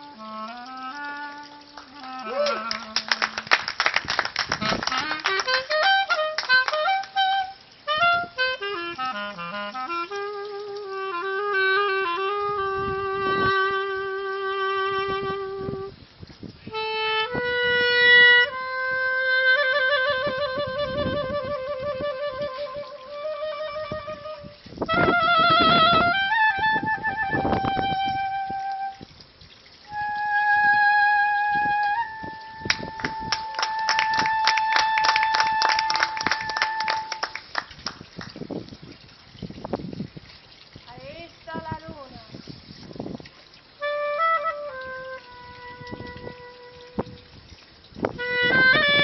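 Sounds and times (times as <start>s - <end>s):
solo clarinet playing: 0.0s - 3.6s, 4.5s - 29.2s, 29.8s - 37.4s, 43.6s - 49.0s
audience hand clapping: 1.7s - 7.4s, 32.6s - 38.4s.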